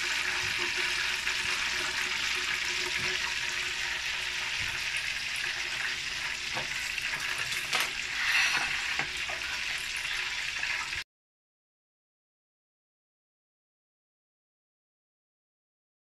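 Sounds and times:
oil sizzling in frying pan: 0:00.0 - 0:11.0.

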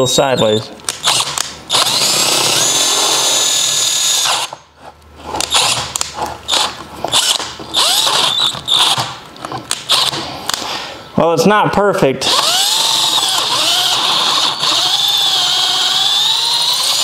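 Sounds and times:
power drill drilling metal: 0:01.0 - 0:04.6, 0:06.5 - 0:09.1, 0:12.3 - 0:17.0.

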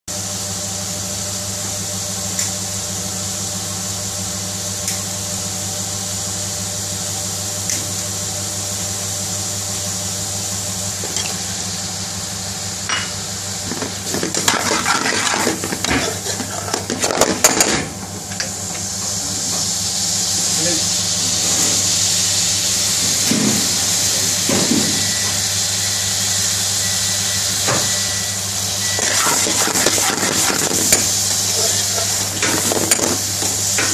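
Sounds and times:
steady hum and hiss: 0:00.1 - 0:33.9
metal spoon scraping pan: 0:14.5 - 0:16.8, 0:29.0 - 0:32.6.

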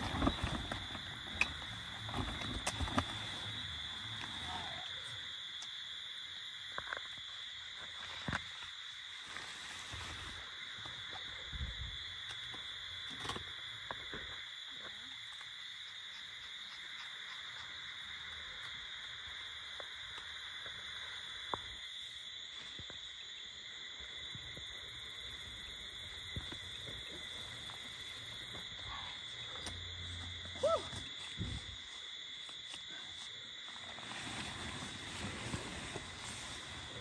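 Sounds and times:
tent frame clicks and rustles: 0:00.0 - 0:04.2, 0:33.8 - 0:37.0
insects chorus: 0:00.0 - 0:37.0.

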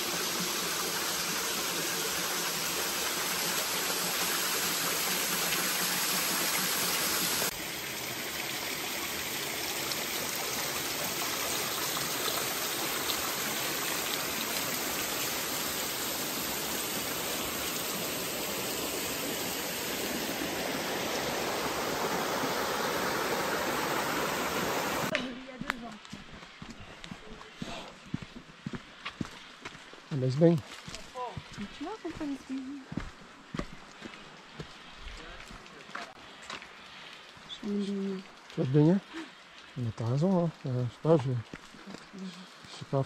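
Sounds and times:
river water rushing over rocks: 0:11.1 - 0:25.2.

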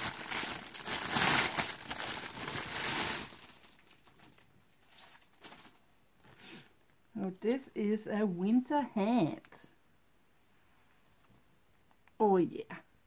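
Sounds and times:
plastic packaging crinkling: 0:00.0 - 0:06.3.

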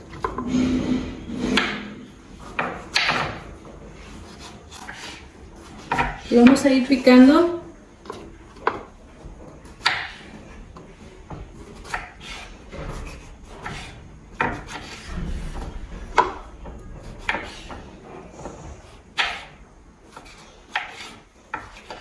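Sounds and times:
knife on wooden cutting board: 0:04.3 - 0:05.2, 0:11.6 - 0:15.1, 0:20.1 - 0:22.0.

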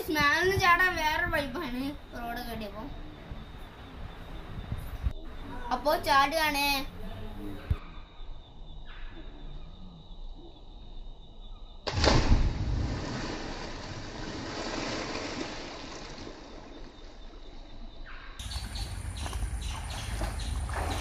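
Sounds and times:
person splashing into water: 0:11.9 - 0:17.2, 0:19.7 - 0:21.0
water churning: 0:11.9 - 0:17.4, 0:18.9 - 0:21.0.

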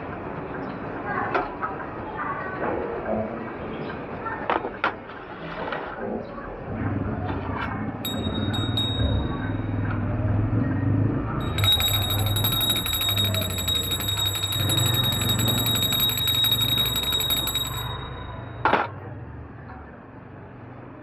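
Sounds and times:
bell ringing rapidly: 0:08.0 - 0:09.8, 0:11.4 - 0:18.8.

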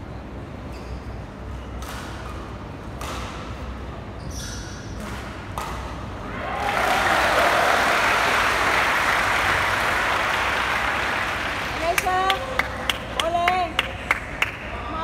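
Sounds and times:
shoe scuffs and squeaks: 0:00.6 - 0:02.6, 0:04.1 - 0:05.0.

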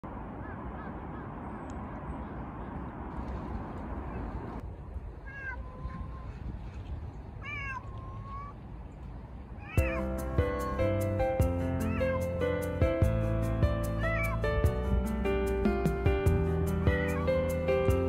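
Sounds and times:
cat meowing: 0:05.2 - 0:06.4, 0:07.4 - 0:08.6, 0:09.6 - 0:10.9, 0:11.8 - 0:12.4, 0:14.0 - 0:14.4.

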